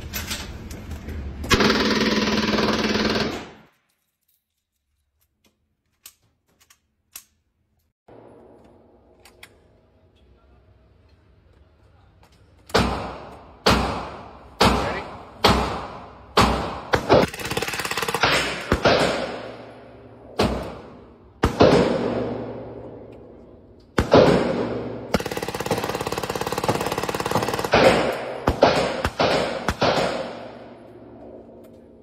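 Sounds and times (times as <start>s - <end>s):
submachine gun firing indoors: 1.5s - 3.7s, 14.8s - 23.0s, 24.0s - 31.4s.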